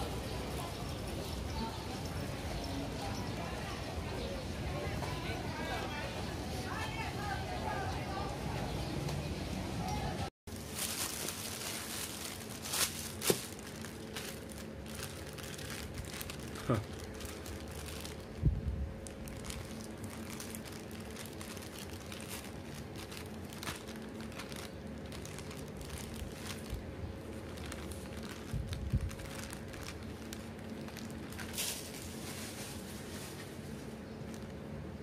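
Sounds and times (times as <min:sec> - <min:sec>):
plastic bag crinkling: 0:10.5 - 0:34.6
steady low hum: 0:10.5 - 0:35.0.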